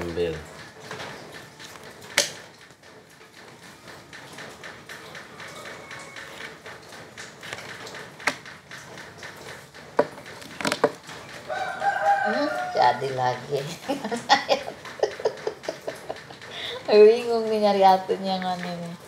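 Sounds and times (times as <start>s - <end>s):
playing cards clacking on wood: 7.2s - 11.3s.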